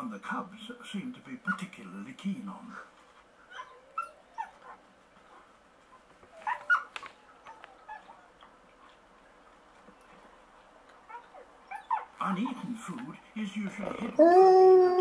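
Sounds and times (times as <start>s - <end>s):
dog whimpering: 3.5s - 4.8s, 6.3s - 8.4s, 11.1s - 12.1s, 13.8s - 15.0s.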